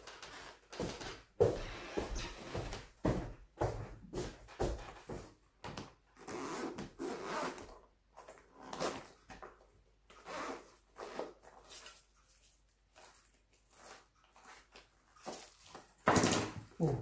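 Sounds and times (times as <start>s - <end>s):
plastic and cardboard packaging rustling: 10.8s - 16.9s.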